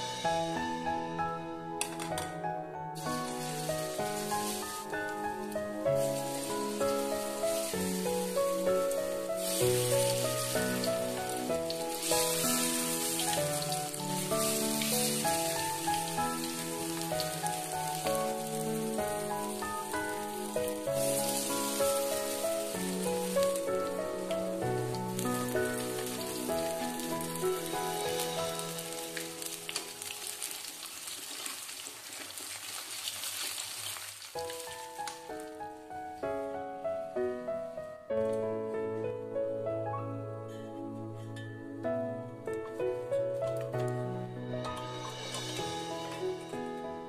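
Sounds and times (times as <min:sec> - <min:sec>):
soft instrumental music: 0:00.0 - 0:31.1, 0:34.4 - 0:47.0
fritters frying in oil: 0:06.0 - 0:23.4, 0:24.8 - 0:34.8.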